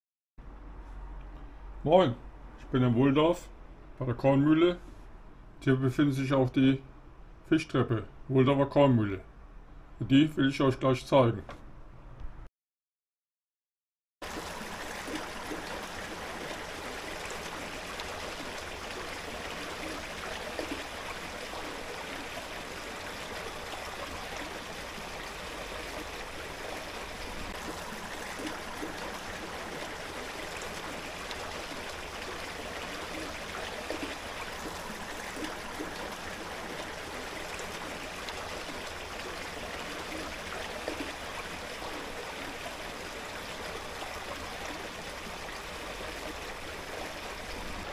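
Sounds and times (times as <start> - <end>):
water rushing down fish ladder: 14.2 - 47.9.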